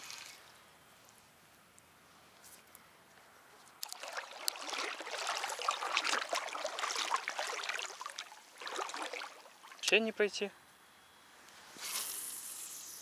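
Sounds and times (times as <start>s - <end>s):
wading through marsh water: 3.8s - 10.1s.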